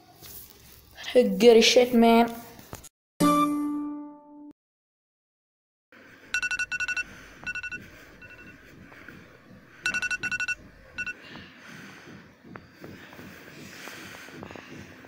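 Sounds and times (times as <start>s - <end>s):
electronic alarm beeping: 6.3s - 11.2s.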